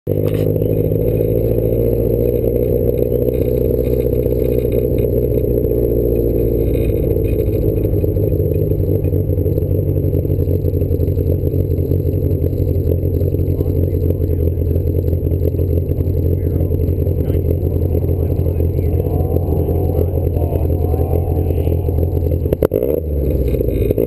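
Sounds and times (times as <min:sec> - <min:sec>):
car engine running at low revs: 0:00.0 - 0:24.0.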